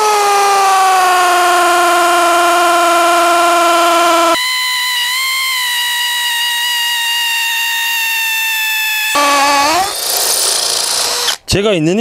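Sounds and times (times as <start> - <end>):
hammer drill boring into stone: 4.4 - 11.4.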